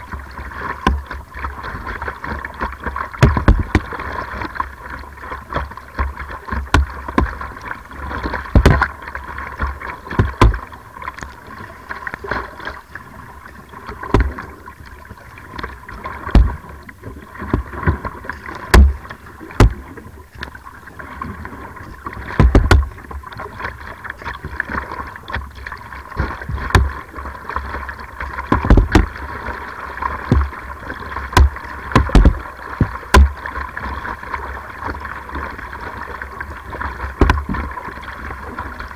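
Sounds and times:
paddle strokes splashing: 0.0s - 38.9s
water rushing along hull: 0.0s - 38.9s
sharp thumps and knocks: 3.2s - 3.9s, 6.7s - 7.4s, 8.5s - 8.9s, 10.2s - 10.7s, 14.1s - 14.4s, 16.3s - 16.6s, 18.7s - 19.9s, 22.4s - 23.0s, 26.2s - 27.0s, 28.5s - 29.2s, 30.3s - 30.5s, 31.3s - 33.4s, 37.2s - 37.6s.

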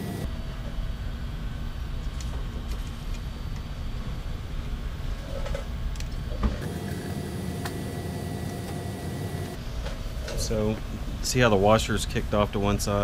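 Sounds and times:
steady low rumble: 0.0s - 6.4s.

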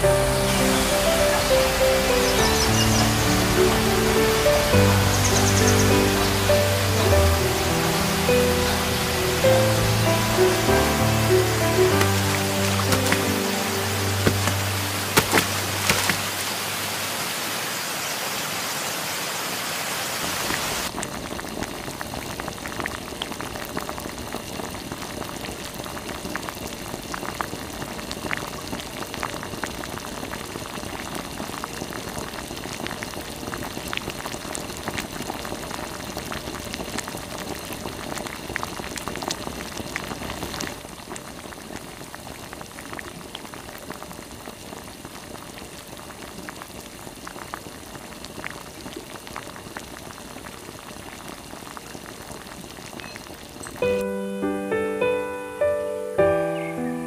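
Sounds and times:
water rushing over rocks: 0.0s - 21.0s
wood fire crackling: 0.1s - 17.2s
pot bubbling: 20.9s - 54.0s.

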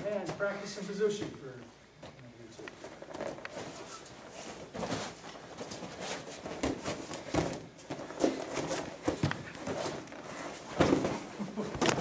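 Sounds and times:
bodies thudding on mats: 3.1s - 12.0s.

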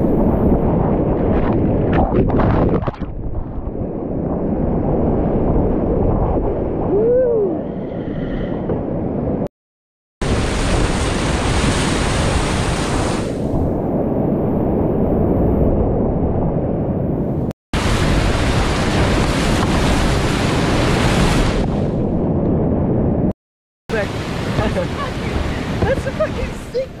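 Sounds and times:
water splashing around boat: 10.2s - 13.6s, 17.8s - 22.0s, 23.9s - 27.0s
rush of whitewater: 23.9s - 27.0s.

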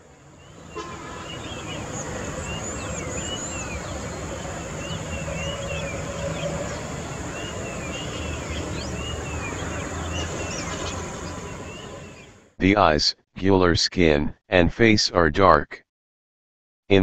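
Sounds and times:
small birds chirping: 0.1s - 12.4s.

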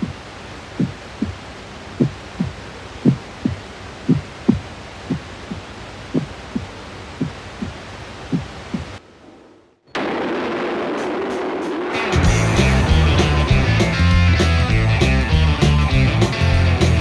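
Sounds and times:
steady hiss: 0.0s - 17.0s
heartbeat thumps: 0.8s - 1.4s, 2.0s - 9.0s.

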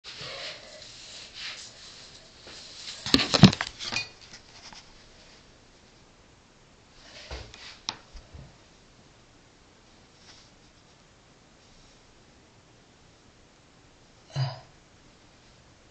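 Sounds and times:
camera handling rustling and knocks: 3.0s - 4.8s.

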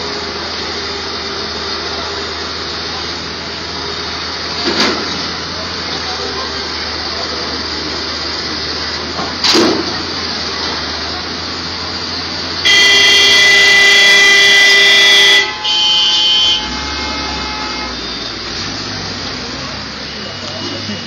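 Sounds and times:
street traffic noise: 0.0s - 21.0s
vehicle horn honking: 12.6s - 18.3s.

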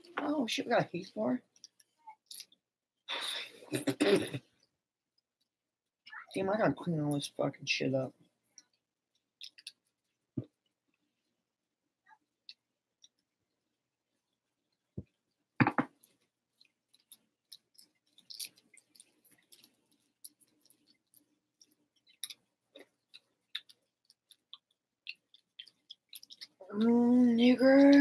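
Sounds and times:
candy wrapper crinkling: 16.0s - 26.6s.

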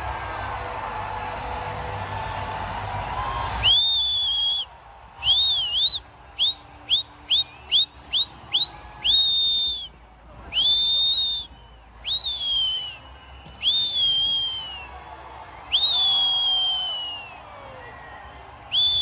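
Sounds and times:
person whistling loudly: 3.6s - 9.9s, 10.5s - 15.0s, 15.7s - 19.0s.

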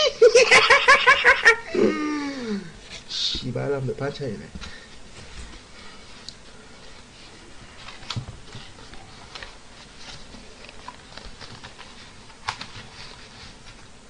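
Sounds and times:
plastic takeout containers handled: 7.8s - 14.0s.

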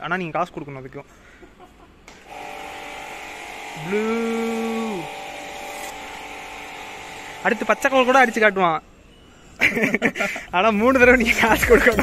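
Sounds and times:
pressure sprayer motor whine: 2.2s - 8.6s.

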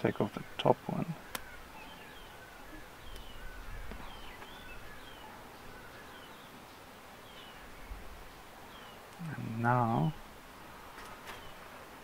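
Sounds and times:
faint outdoor ambience: 0.0s - 12.0s
small birds chirping: 0.0s - 12.0s.

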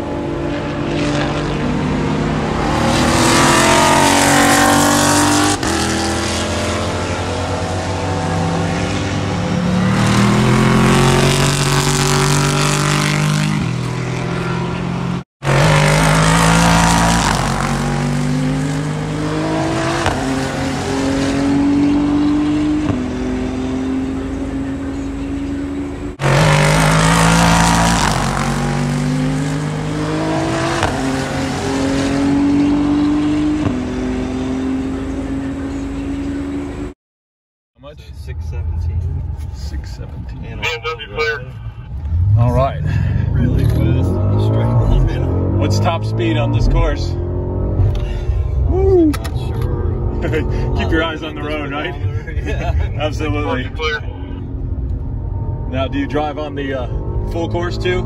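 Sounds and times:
car engine accelerating through gears: 0.0s - 36.9s, 42.0s - 53.5s, 54.2s - 58.0s.

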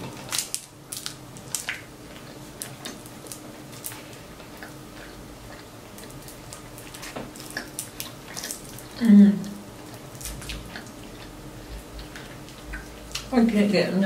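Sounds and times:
shellfish shells cracking: 0.0s - 4.8s, 6.0s - 9.0s
chewing: 1.0s - 13.3s.

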